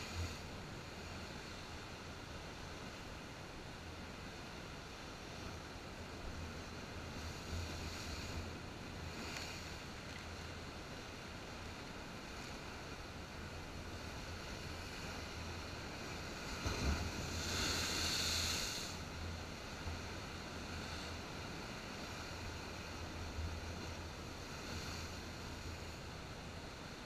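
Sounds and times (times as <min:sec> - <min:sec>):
waves washing on rocks: 0:14.0 - 0:22.6
wave hitting rocks with a thump: 0:16.4 - 0:18.2.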